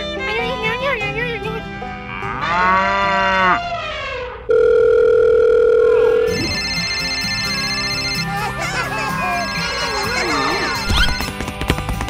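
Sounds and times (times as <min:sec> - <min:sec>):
light background music: 0:00.0 - 0:02.2
telephone dial tone: 0:04.5 - 0:07.4
pulsing phone ringtone: 0:04.5 - 0:10.8.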